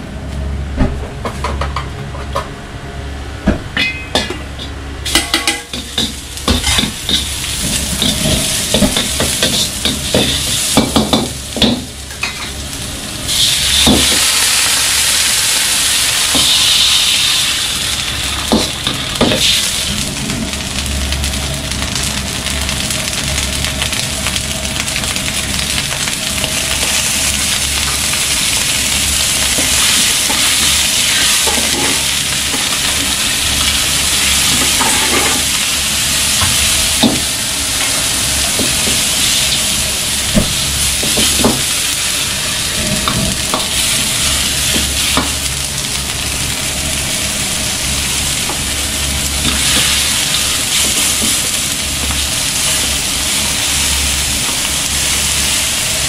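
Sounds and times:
steady low hum: 0.0s - 56.0s
metal ladle clanking on wok: 3.8s - 7.3s
food sizzling in a wok: 3.8s - 56.0s.

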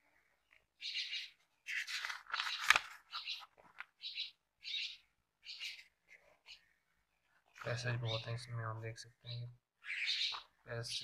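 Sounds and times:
book pages turning: 1.7s - 4.0s
paper snapping: 2.0s - 3.0s.

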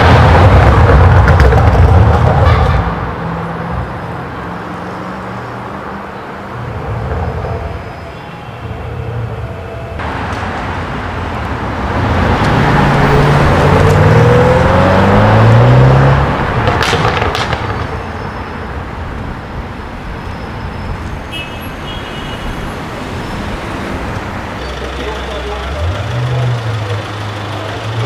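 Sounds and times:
traffic noise: 0.0s - 28.0s
car engine accelerating: 10.0s - 17.9s, 23.5s - 28.0s.

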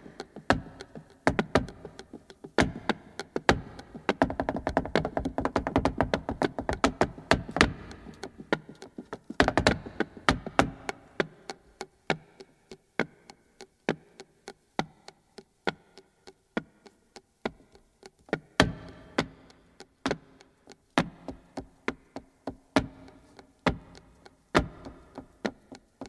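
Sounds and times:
flamenco shoes stamping on wooden floor: 0.1s - 12.2s, 17.5s - 19.4s, 20.0s - 26.0s.

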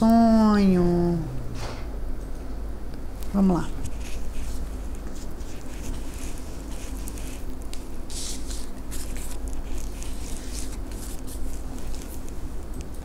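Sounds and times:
steady low hum: 0.0s - 13.0s
cards shuffling: 3.8s - 12.5s
cards slapping and rustling: 4.0s - 12.5s.

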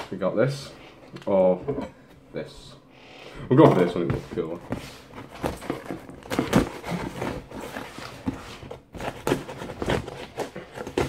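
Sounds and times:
cardboard box being handled: 3.6s - 11.0s.

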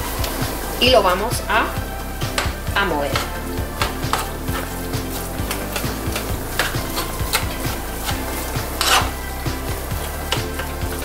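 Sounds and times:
meat sizzling: 0.0s - 11.0s
metal spoon scraping a pan: 2.3s - 11.0s.

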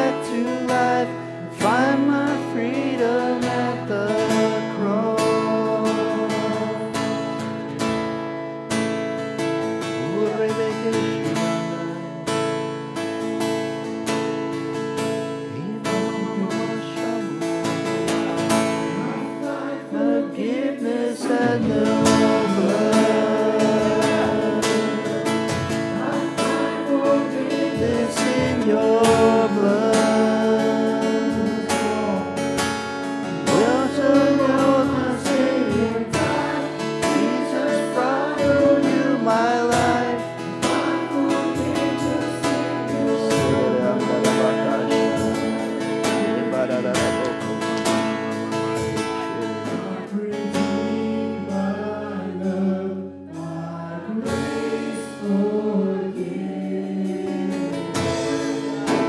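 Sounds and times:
people singing: 0.0s - 8.1s, 9.7s - 12.7s, 15.5s - 59.0s
strummed acoustic guitar: 0.0s - 59.0s.

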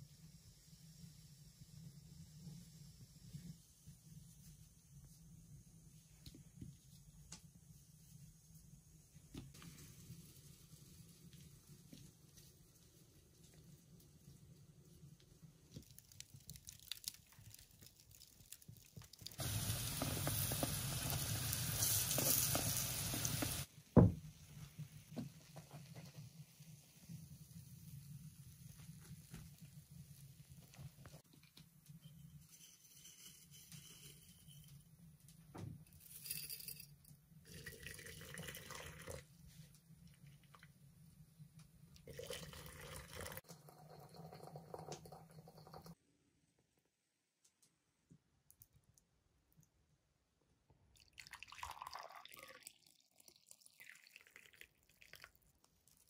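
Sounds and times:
pastries sizzling in a skillet: 16.1s - 23.7s
water pouring into teapot: 37.5s - 39.3s, 42.0s - 46.0s, 51.0s - 56.0s.

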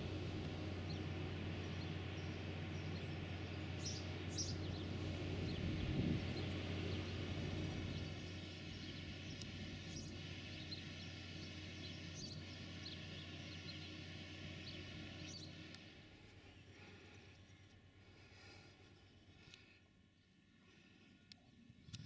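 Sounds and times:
distant tractor engines droning: 0.0s - 22.0s
bird chirps: 3.8s - 5.7s, 7.9s - 14.0s, 14.6s - 15.6s.

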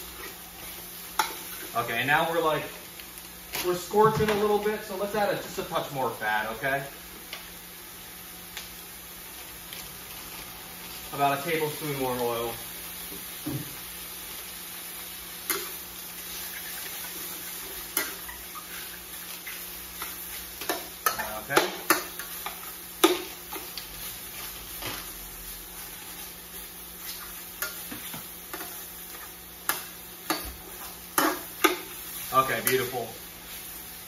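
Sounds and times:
food sizzling in a wok: 0.0s - 34.0s.

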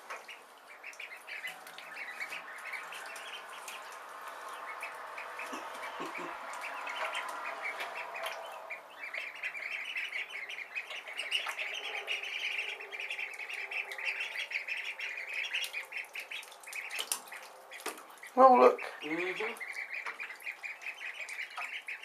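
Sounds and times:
ducklings peeping: 0.0s - 22.0s.

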